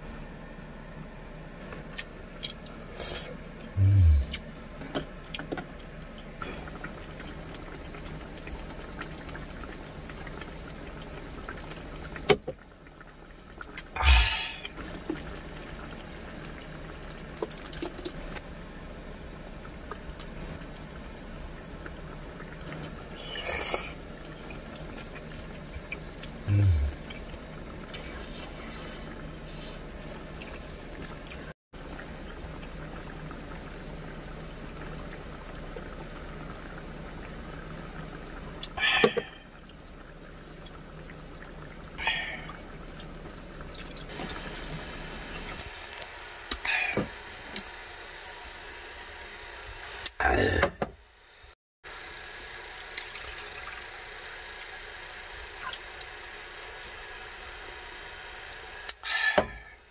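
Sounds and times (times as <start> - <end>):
stew simmering: 0.2 - 50.6
water splashing into stew: 52.7 - 57.0.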